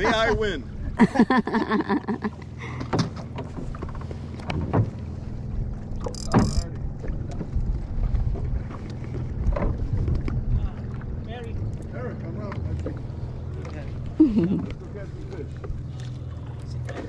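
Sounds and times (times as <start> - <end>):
boat engine humming: 0.0 - 17.0
light knocks from boat: 2.4 - 17.0.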